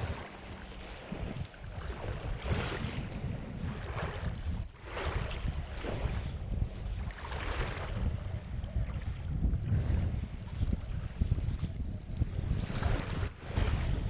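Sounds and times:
sea waves washing in: 0:00.0 - 0:08.2, 0:12.6 - 0:14.0
wind buffeting microphone: 0:00.0 - 0:14.0.

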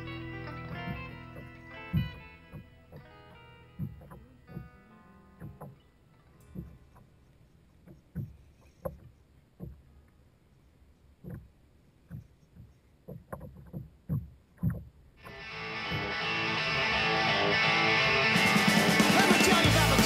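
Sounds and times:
music: 0:00.0 - 0:06.8, 0:15.3 - 0:20.0.

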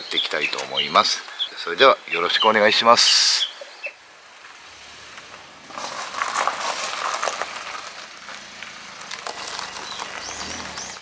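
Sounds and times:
tyres crunching on gravel: 0:02.1 - 0:11.0
van engine hum: 0:03.9 - 0:11.0.

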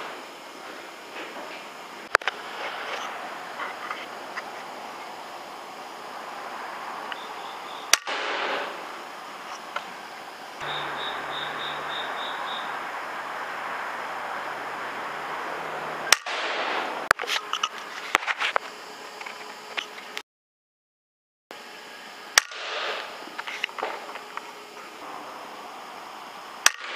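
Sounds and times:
air rifle shots: 0:07.9 - 0:08.8, 0:16.1 - 0:17.1, 0:22.4 - 0:23.1.

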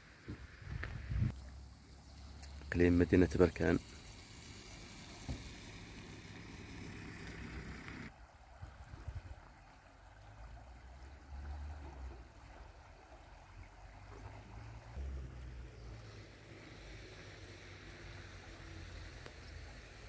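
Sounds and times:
wind buffeting microphone: 0:00.4 - 0:01.4
bright hiss: 0:02.2 - 0:08.1.

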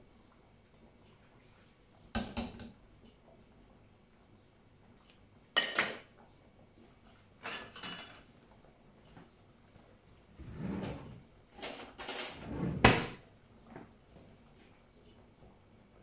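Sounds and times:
cookware and utensils clattering: 0:05.6 - 0:06.2, 0:07.4 - 0:08.4, 0:10.8 - 0:13.2.

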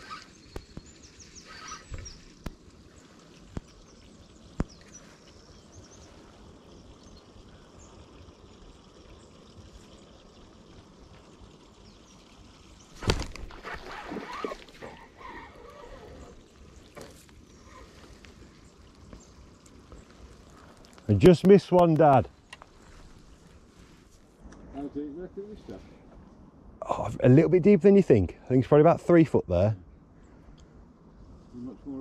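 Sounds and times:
water splashing: 0:12.8 - 0:23.6.

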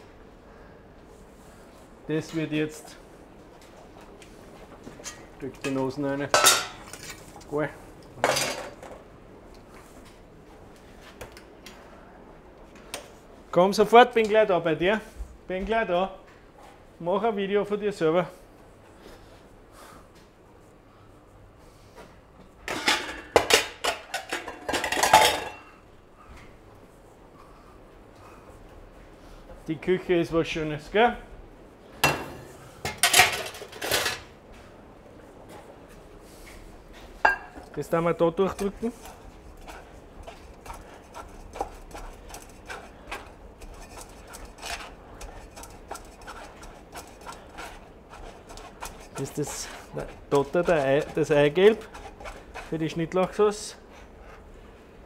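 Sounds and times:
metal pans and utensils clanking: 0:05.0 - 0:07.5, 0:08.2 - 0:08.9, 0:22.7 - 0:25.8, 0:32.0 - 0:34.3
egg scraping through mesh sieve: 0:38.6 - 0:53.7.

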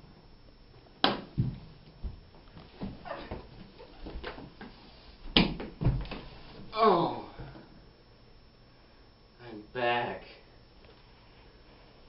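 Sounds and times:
body thumping on wooden floor: 0:01.0 - 0:06.7.

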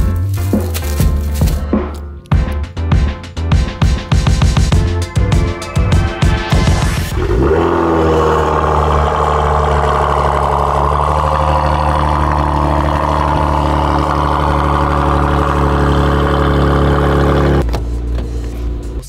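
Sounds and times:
car engine idling: 0:07.1 - 0:19.0.

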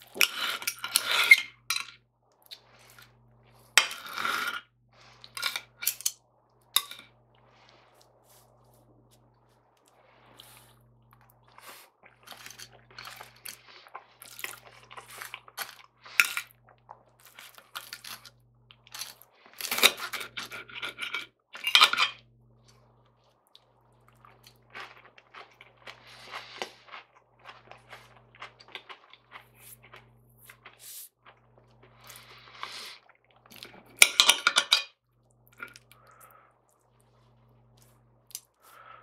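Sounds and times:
cutlery scraping on ceramic plate: 0:19.8 - 0:22.2.

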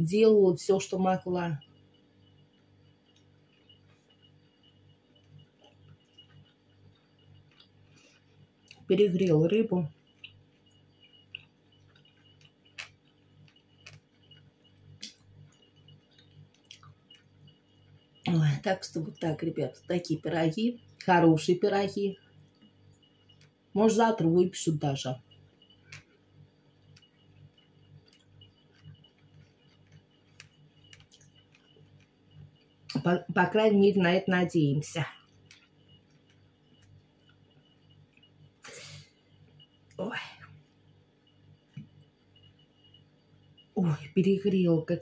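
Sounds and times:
faint low hum: 0:00.0 - 0:45.0
chewing clicks: 0:05.1 - 0:08.9, 0:10.0 - 0:17.6, 0:25.6 - 0:26.2, 0:26.8 - 0:33.0, 0:35.2 - 0:38.3.

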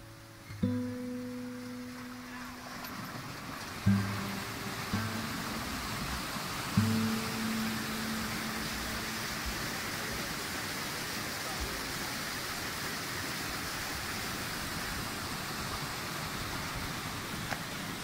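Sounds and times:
water rushing over rocks: 0:00.0 - 0:18.0.

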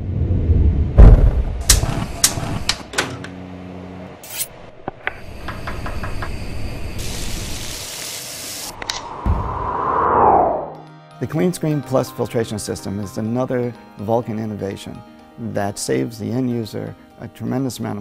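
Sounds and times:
steady hiss: 0:05.2 - 0:08.9.

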